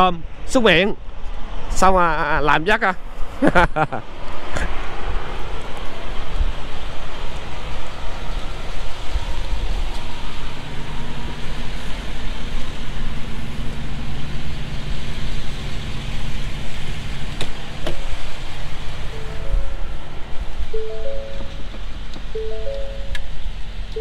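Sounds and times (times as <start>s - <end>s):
trucks idling: 10.1s - 24.0s.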